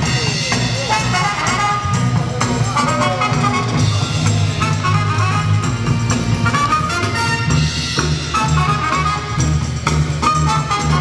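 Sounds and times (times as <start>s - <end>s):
loud dance music with brass: 0.0s - 11.0s
steady drum beat: 0.0s - 11.0s.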